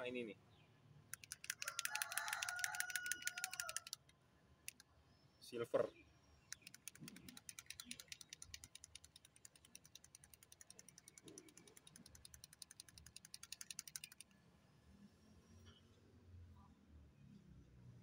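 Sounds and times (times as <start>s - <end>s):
ball rattling in shaken paint bottle: 1.2s - 4.0s, 6.6s - 14.2s.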